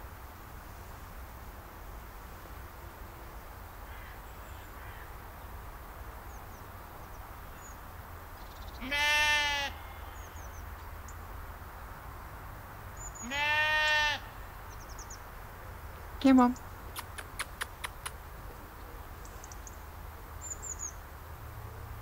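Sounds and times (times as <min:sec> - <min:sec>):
sheep bleating: 0:08.8 - 0:10.4, 0:13.2 - 0:14.4.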